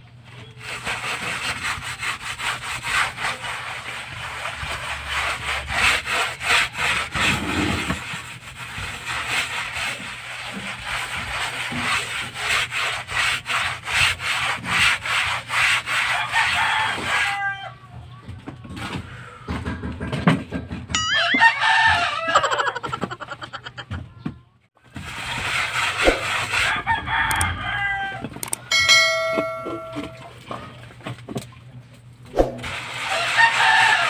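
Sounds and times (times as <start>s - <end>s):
trowel scraping plaster on concrete: 0.4s - 17.4s, 24.9s - 26.9s, 32.4s - 34.0s
rooster crowing: 16.1s - 17.8s, 21.0s - 22.9s, 26.6s - 28.3s, 33.1s - 34.0s
metallic clang: 28.6s - 30.4s.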